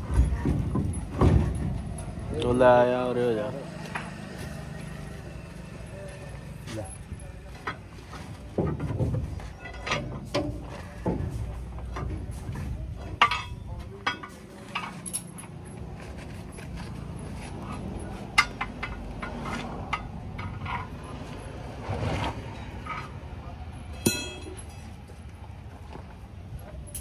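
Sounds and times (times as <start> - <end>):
metallic clinks of tools: 13.2 - 15.6, 23.9 - 25.0
ringing metal strike: 24.0 - 24.9.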